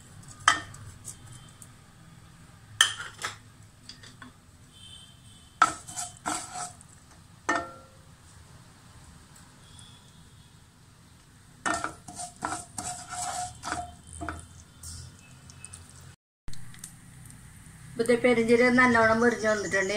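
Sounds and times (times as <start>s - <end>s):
dishes clinking and knocking: 2.8s - 3.4s, 7.5s - 7.9s, 11.6s - 14.4s.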